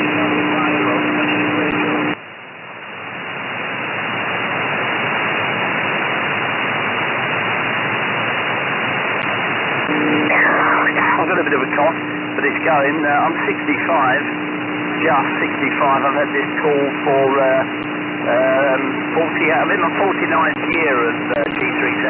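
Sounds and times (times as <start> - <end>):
steady low tone: 0.0 - 2.2, 9.2 - 22.0
shortwave radio static hiss: 0.0 - 22.0.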